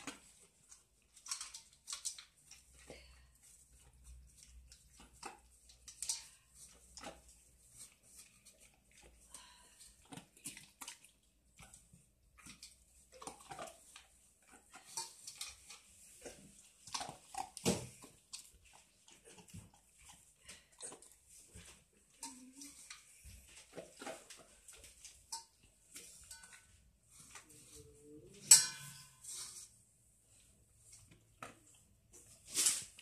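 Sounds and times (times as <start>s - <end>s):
teeth clicking on metal bowl: 4.2s - 7.5s
dog chewing: 10.0s - 21.8s.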